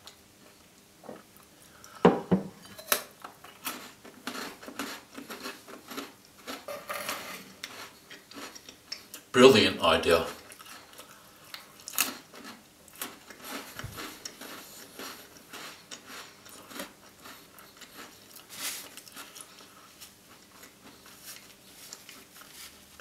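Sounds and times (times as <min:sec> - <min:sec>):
wet chewing: 0:10.4 - 0:22.7.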